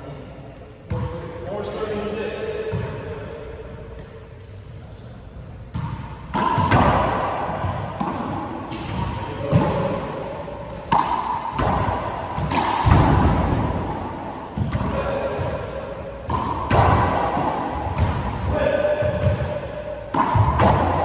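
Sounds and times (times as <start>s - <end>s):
ball hits echoing in court: 5.7s - 21.0s.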